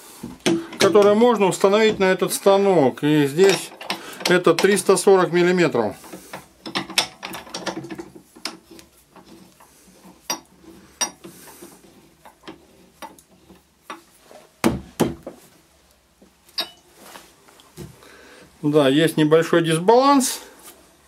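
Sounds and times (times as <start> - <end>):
metallic clicks and scrapes: 6.0 - 14.1.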